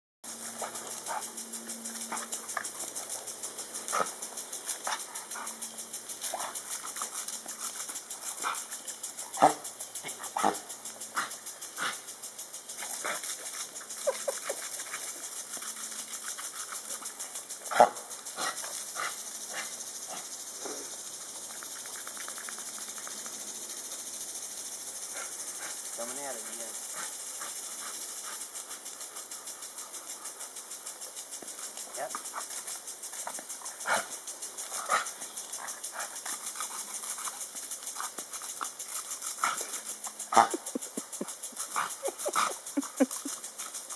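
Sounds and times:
sprinkler ticking: 0:00.3 - 0:43.9
dog barking and yipping: 0:09.4 - 0:11.3, 0:40.3 - 0:43.2.

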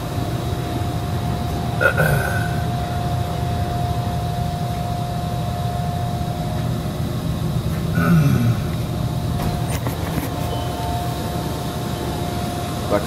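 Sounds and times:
machinery hum and rumble: 0:00.0 - 0:13.0
thin steady whine: 0:00.0 - 0:13.0.

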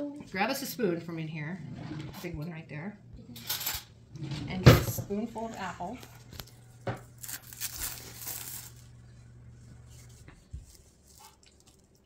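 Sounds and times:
faint low hum: 0:00.0 - 0:12.0
plastic wrap crinkling: 0:05.4 - 0:09.2, 0:09.9 - 0:12.0.

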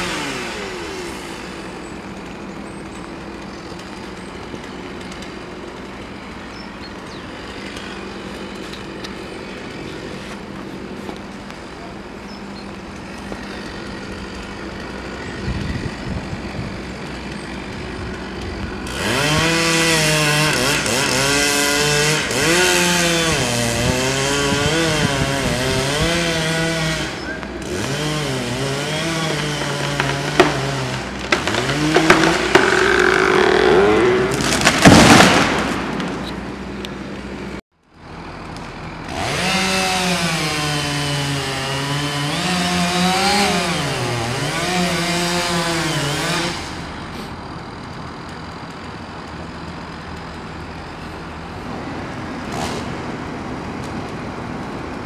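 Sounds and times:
chainsaw cutting wood: 0:00.0 - 0:36.5, 0:38.3 - 0:50.5, 0:51.5 - 0:54.2
tree falling with branches breaking: 0:29.4 - 0:36.5.

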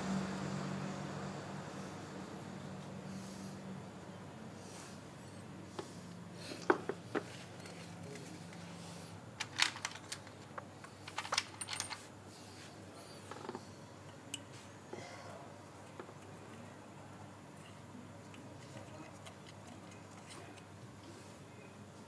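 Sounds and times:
metal parts clicking and clinking: 0:09.4 - 0:12.1.

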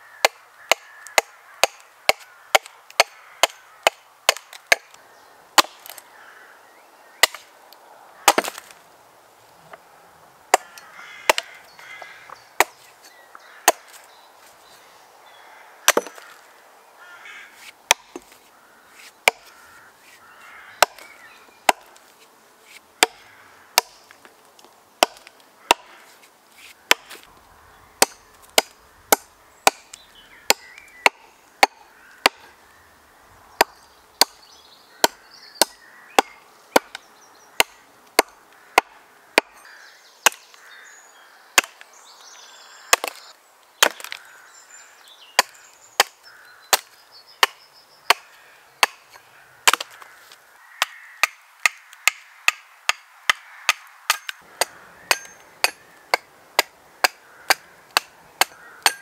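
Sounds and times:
axe chopping wood: 0:00.2 - 0:05.0, 0:05.6 - 0:06.0, 0:07.2 - 0:07.5, 0:08.2 - 0:08.7, 0:10.5 - 0:11.6, 0:12.6 - 0:12.9, 0:13.6 - 0:14.0, 0:15.8 - 0:16.3, 0:17.9 - 0:18.4, 0:19.2 - 0:19.5, 0:20.8 - 0:21.0, 0:21.7 - 0:21.9, 0:23.0 - 0:23.2, 0:23.8 - 0:24.1, 0:25.0 - 0:26.0, 0:26.6 - 0:27.3, 0:28.0 - 0:32.5, 0:35.0 - 0:37.0, 0:37.6 - 0:39.6, 0:40.2 - 0:40.5, 0:41.6 - 0:41.8, 0:42.9 - 0:43.2, 0:43.8 - 0:44.2, 0:45.4 - 0:50.0, 0:50.8 - 0:59.0.

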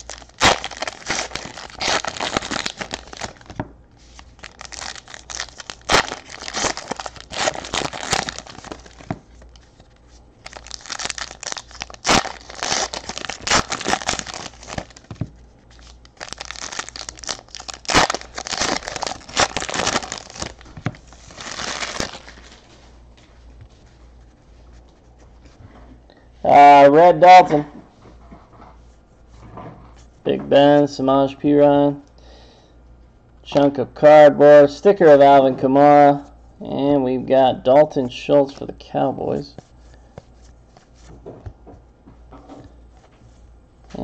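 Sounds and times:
foil wrapper crinkling and tearing: 0:00.0 - 0:09.7, 0:10.4 - 0:22.7.

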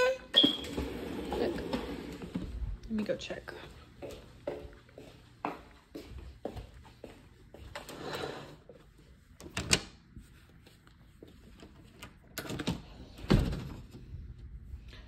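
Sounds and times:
door opening and closing: 0:00.3 - 0:02.5.

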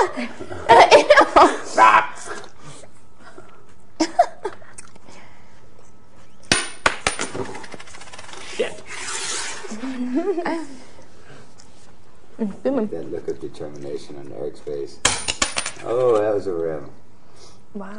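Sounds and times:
coin clinking on tabletop: 0:15.1 - 0:15.8.

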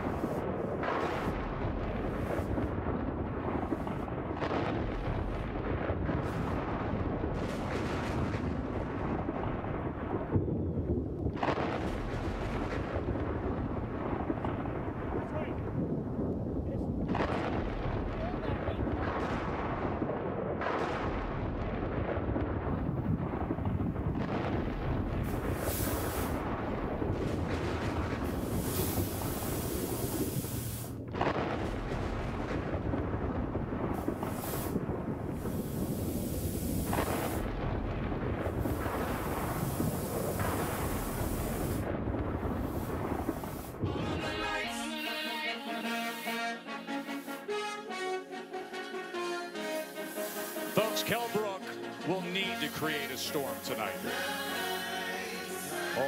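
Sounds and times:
jets and spark fountains hissing: 0:00.0 - 0:01.4, 0:02.0 - 0:02.6, 0:25.2 - 0:26.6, 0:27.7 - 0:31.0, 0:33.9 - 0:37.6, 0:38.4 - 0:47.6, 0:49.1 - 0:56.0
pyrotechnic spark fountains firing: 0:00.0 - 0:10.2, 0:11.2 - 0:15.9, 0:17.0 - 0:56.0
low rumble: 0:00.0 - 0:44.8
sudden loud blast: 0:49.5 - 0:54.3.

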